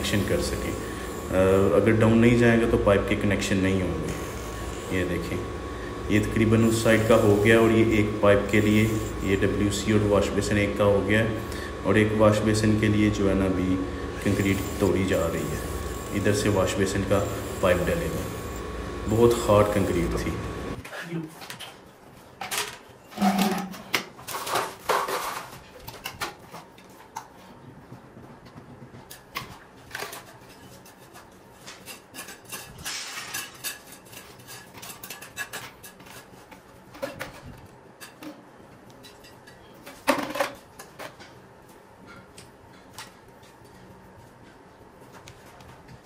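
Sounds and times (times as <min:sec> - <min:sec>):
plastic pipes clattering on concrete: 0:22.4 - 0:26.6.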